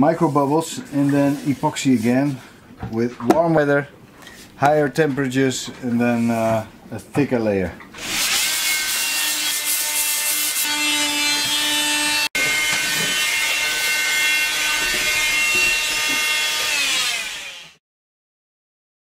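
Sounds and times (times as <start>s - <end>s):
power tool grinding wood: 8.0s - 17.8s.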